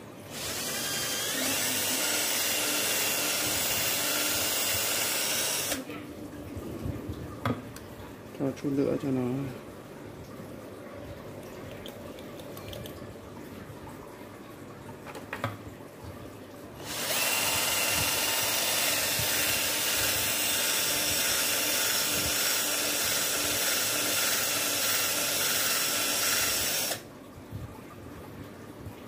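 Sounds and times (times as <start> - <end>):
cordless drill spinning: 0.3 - 5.9, 16.8 - 27.0.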